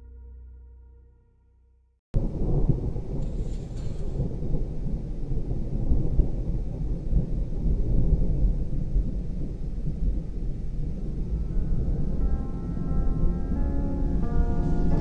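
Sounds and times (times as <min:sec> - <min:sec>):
rain: 0:02.2 - 0:12.2
rolling thunder: 0:02.2 - 0:15.0.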